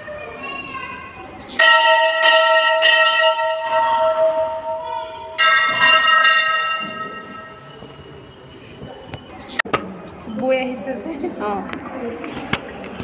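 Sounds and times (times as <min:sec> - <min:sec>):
temple bell ringing: 0:01.6 - 0:09.5.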